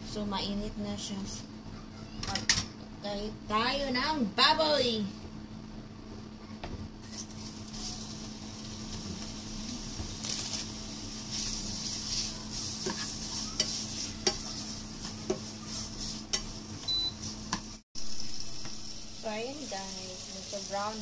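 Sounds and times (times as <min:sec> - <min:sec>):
steady low hum: 0:00.0 - 0:21.0
meat sizzling in a frying pan: 0:07.0 - 0:21.0
spatula knocking against pan: 0:12.8 - 0:15.5.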